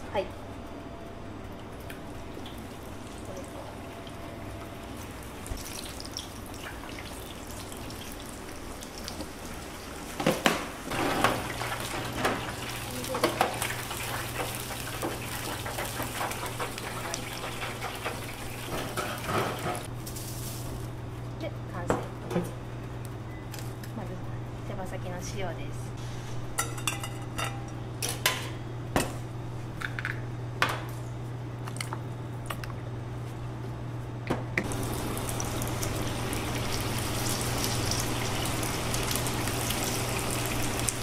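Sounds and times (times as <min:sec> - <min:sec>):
steady low hum: 0:00.0 - 0:10.0
oil sizzling in fryer: 0:02.2 - 0:20.9, 0:34.6 - 0:41.0
metal skimmer knocking fryer: 0:10.9 - 0:19.9.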